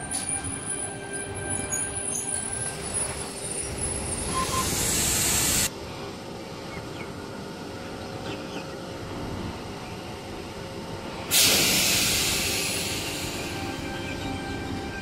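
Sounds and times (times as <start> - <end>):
electric train running: 0.0 - 5.7, 11.3 - 15.0
loud hiss: 4.4 - 5.7, 11.3 - 13.8.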